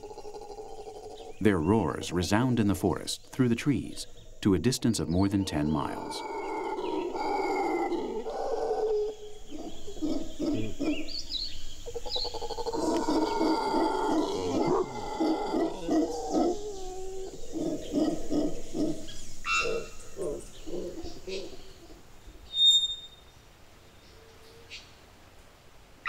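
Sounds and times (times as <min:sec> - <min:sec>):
howler monkeys roaring: 0:00.0 - 0:02.6, 0:05.0 - 0:22.1.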